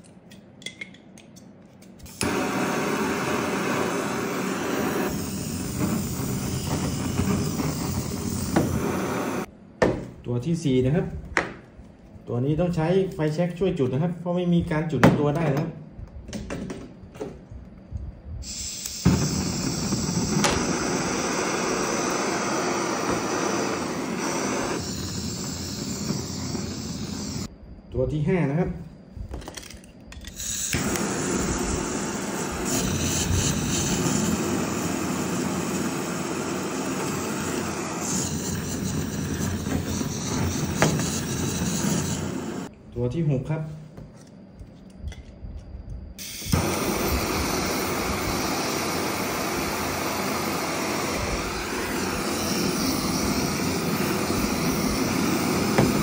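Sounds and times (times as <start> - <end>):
gas torch hissing: 2.0 - 9.5, 17.9 - 27.5, 30.2 - 42.7, 46.2 - 56.0.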